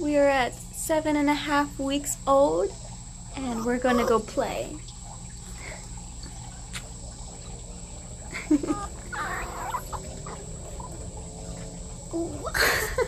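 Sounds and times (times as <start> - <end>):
puppy whimpering and yipping: 3.5 - 4.3, 8.6 - 11.0.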